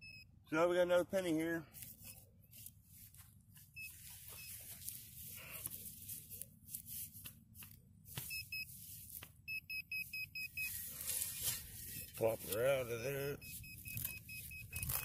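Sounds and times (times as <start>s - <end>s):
metal detector beeps: 0.0s - 0.3s, 2.0s - 2.3s, 3.6s - 5.1s, 8.2s - 15.0s
hand digger scraping soil: 10.1s - 15.0s.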